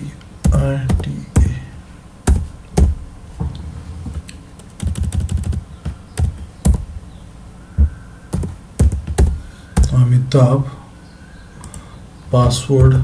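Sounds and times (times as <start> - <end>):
keyboard typing: 0.4 - 1.6, 4.6 - 6.9, 8.3 - 10.0.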